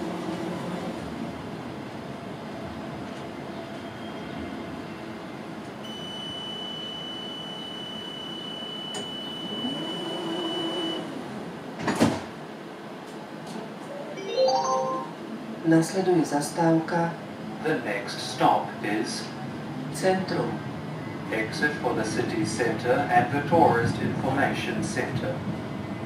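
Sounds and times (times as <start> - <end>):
tram background hum: 0.0 - 5.9, 9.6 - 14.1, 15.1 - 26.0
high electronic tone: 14.2 - 15.2.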